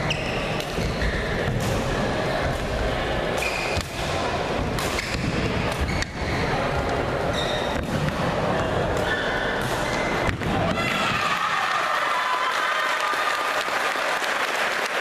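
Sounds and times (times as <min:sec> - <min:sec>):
shoes squeaking on court floor: 0:00.0 - 0:01.5, 0:03.4 - 0:03.8, 0:05.0 - 0:07.9, 0:09.0 - 0:10.3
racket hitting shuttlecock: 0:03.4 - 0:06.3.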